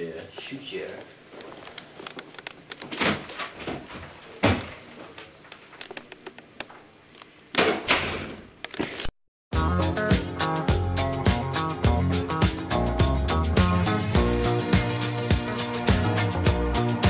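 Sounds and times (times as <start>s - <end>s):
knocks and thumps of people moving: 2.7s - 5.2s.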